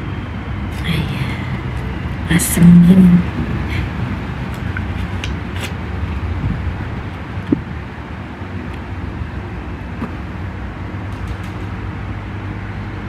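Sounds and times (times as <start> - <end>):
low rumble and hum: 0.0 - 13.0.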